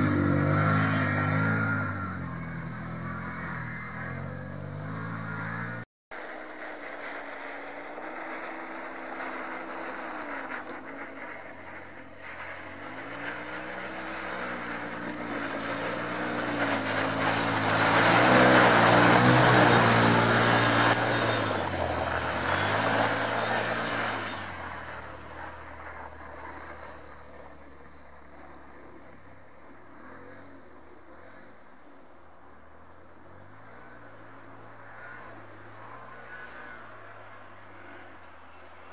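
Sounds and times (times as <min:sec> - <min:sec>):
utility vehicle engine revving: 0:00.0 - 0:29.0.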